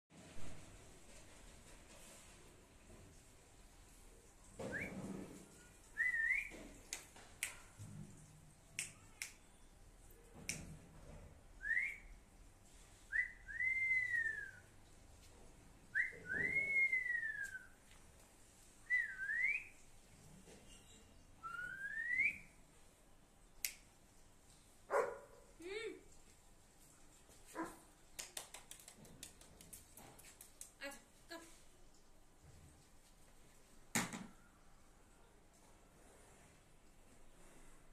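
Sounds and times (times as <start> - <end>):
whistled notes: 16.0 - 17.8.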